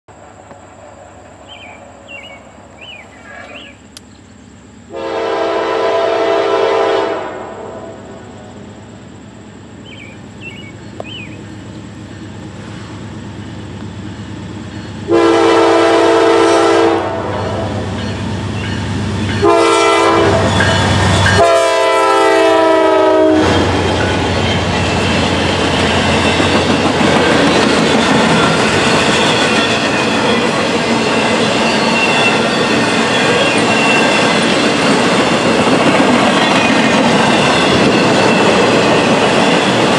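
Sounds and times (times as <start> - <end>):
train rumble: 0.1 - 39.9
birds chirping: 1.3 - 4.8, 9.7 - 12.5
locomotive air horn: 4.9 - 8.3, 15.1 - 17.9, 19.4 - 23.8
freight cars rolling on rails: 8.2 - 39.9.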